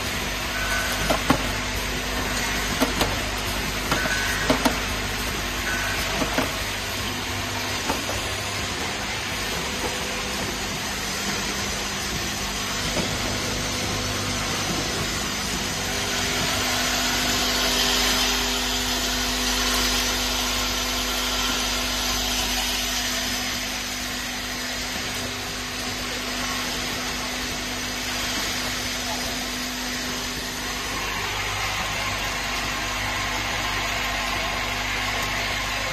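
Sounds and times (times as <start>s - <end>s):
filling machine humming and whirring: 0.0s - 35.9s.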